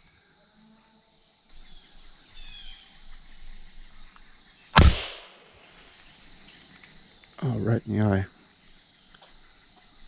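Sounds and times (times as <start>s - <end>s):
soft bird chirps: 0.0s - 4.8s
faint high insect drone: 0.0s - 10.0s.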